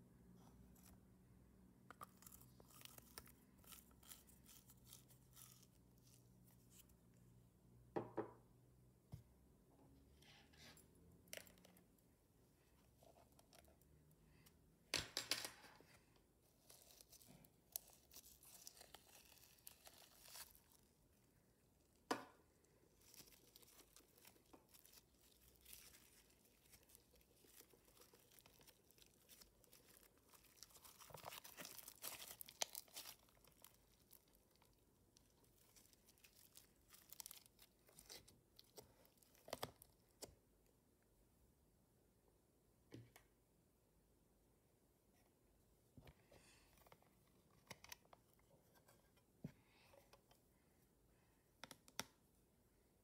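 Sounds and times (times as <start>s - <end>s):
slime crackling and popping: 23.0s - 37.7s.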